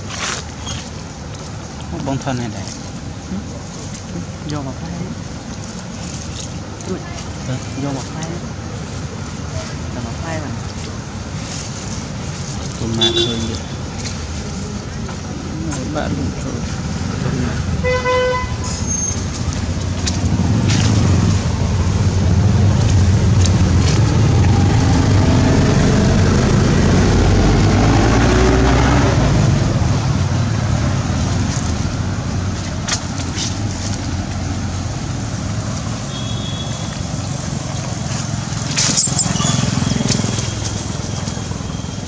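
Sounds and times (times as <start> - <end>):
vehicle engine and road rumble: 0.0 - 42.0.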